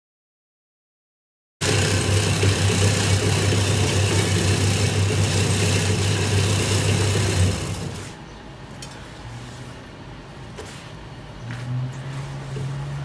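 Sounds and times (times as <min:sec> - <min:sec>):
herb chopping machine running: 0:01.6 - 0:08.2.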